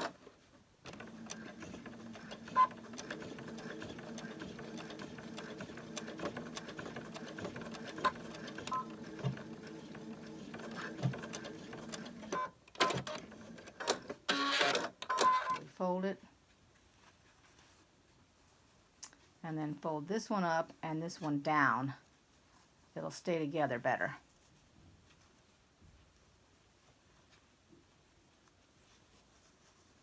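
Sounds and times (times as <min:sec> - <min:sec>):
sewing machine stitching: 0:00.8 - 0:15.6.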